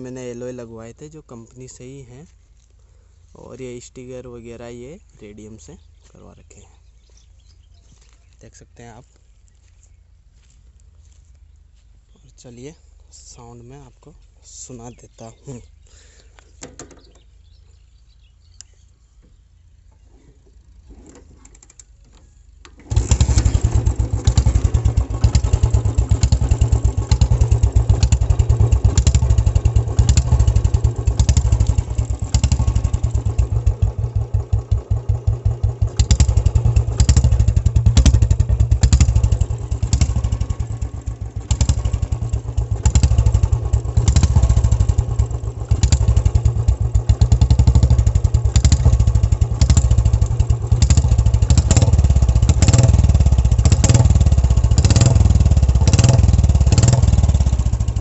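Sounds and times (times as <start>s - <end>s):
motorcycle engine revving: 22.7s - 58.0s.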